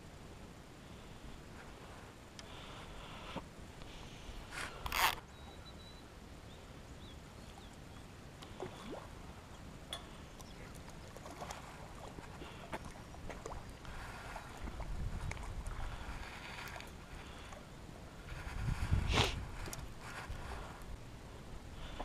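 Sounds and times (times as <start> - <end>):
wind rumble on microphone: 13.4 - 17.3, 18.2 - 22.0.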